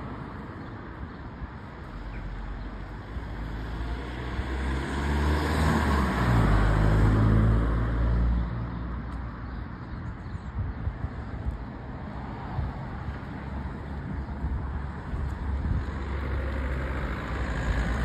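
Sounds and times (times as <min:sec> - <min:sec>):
traffic noise: 0:00.0 - 0:18.0
vehicle driving past: 0:03.4 - 0:08.4.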